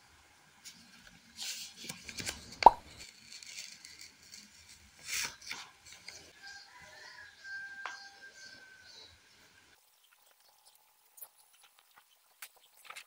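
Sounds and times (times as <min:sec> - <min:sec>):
paper rustling: 0:00.6 - 0:06.3
stationery handling noises: 0:00.6 - 0:06.3, 0:11.2 - 0:13.0.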